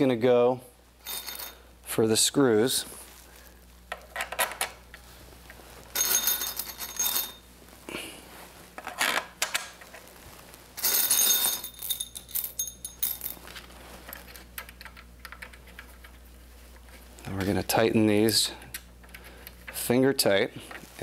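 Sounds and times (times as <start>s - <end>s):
screws and nuts clinking in a bowl: 1.0s - 1.6s, 5.9s - 7.4s, 10.8s - 14.7s.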